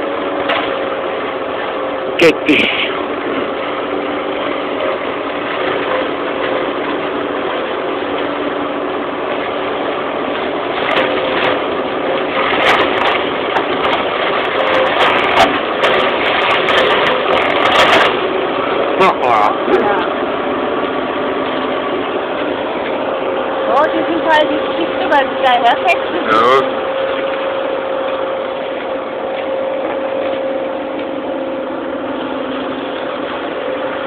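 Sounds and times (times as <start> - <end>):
tractor engine running: 0.0 - 34.0
flail mower cracking hedge: 10.7 - 20.0.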